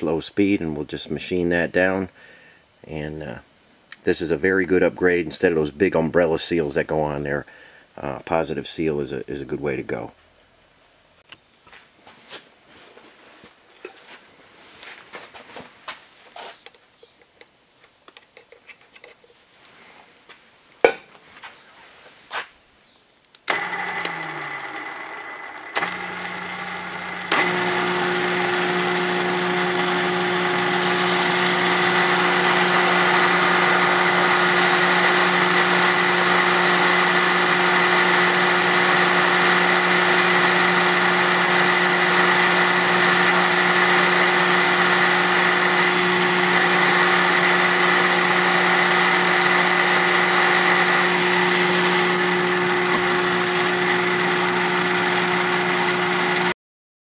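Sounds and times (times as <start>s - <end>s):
machine spindle motor running: 23.4s - 56.5s.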